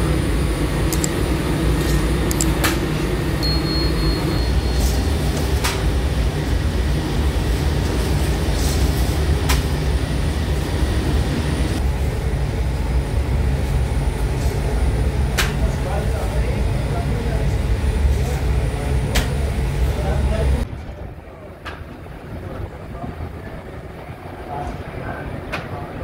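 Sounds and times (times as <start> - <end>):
machinery low rumble: 0.0 - 26.0
sharp clicks: 0.9 - 1.2, 1.9 - 2.8
brief high beeping: 3.4 - 5.1.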